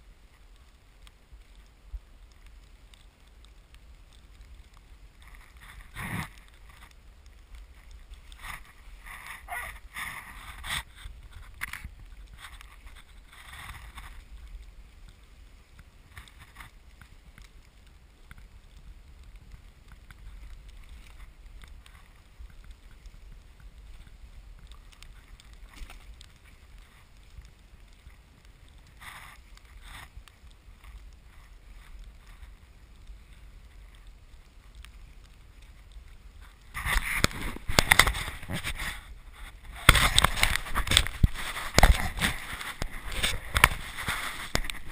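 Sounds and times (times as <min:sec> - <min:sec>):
sled scraping and rattling: 0:05.2 - 0:06.8, 0:07.7 - 0:14.3, 0:36.4 - 0:44.9
sled runners hissing on snow: 0:40.6 - 0:44.9.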